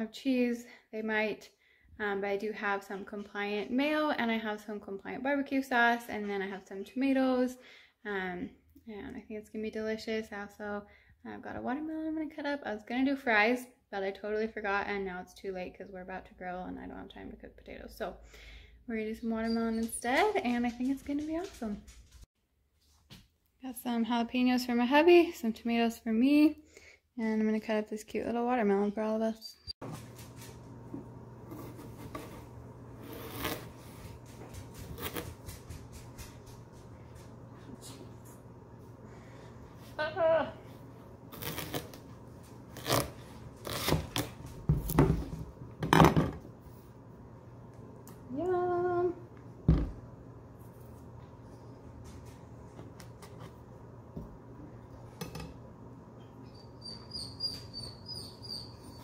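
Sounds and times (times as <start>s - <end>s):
knife cutting watermelon rind: 31.5s - 33.9s, 34.8s - 35.6s, 41.3s - 42.1s, 42.7s - 45.0s
knocks and clatter on countertop: 44.6s - 46.5s, 49.7s - 50.0s.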